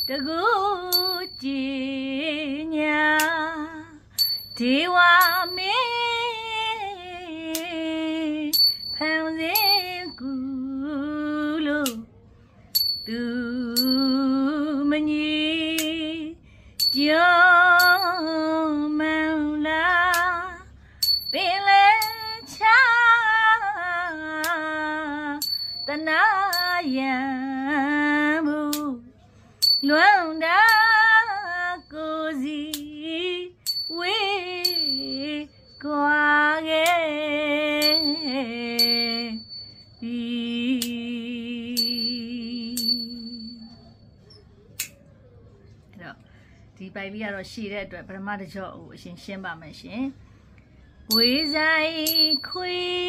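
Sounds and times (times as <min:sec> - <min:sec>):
small cymbal strikes: 0:00.0 - 0:01.6, 0:17.8 - 0:19.1, 0:25.4 - 0:27.0, 0:37.8 - 0:40.1, 0:41.7 - 0:43.6, 0:51.1 - 0:52.9.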